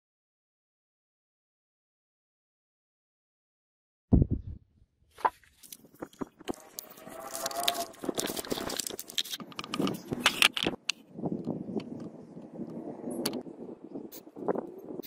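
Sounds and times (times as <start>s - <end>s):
paper crinkling and rustling: 5.2s - 10.8s
scissors snipping paper: 5.6s - 10.8s.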